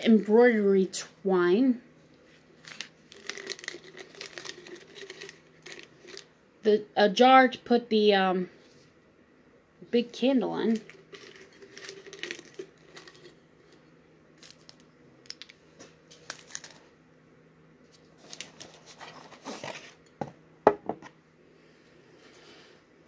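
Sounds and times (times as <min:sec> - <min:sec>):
packaging rustling: 0:02.6 - 0:06.3, 0:10.7 - 0:13.8, 0:14.4 - 0:16.9, 0:18.2 - 0:20.0.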